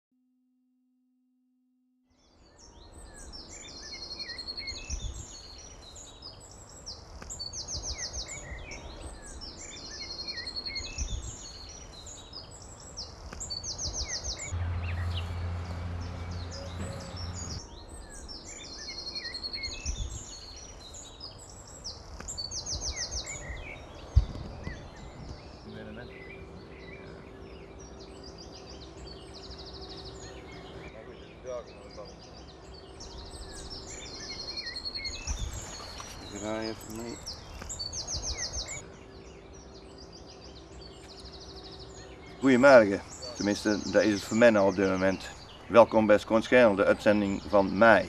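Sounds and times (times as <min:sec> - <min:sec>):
songbirds singing: 0:02.1 - 0:48.0
low steady hum: 0:23.2 - 0:45.7.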